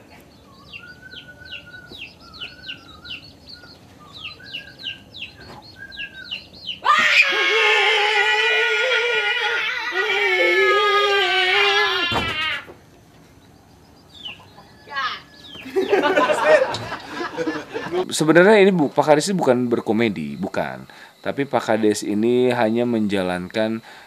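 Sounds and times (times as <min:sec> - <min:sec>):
high-pitched human scream: 0:06.8 - 0:12.7.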